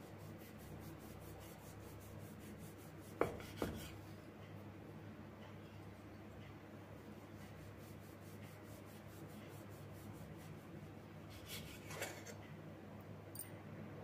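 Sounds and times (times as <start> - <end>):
knife scraping through dough: 0.0 - 4.0, 11.3 - 12.4.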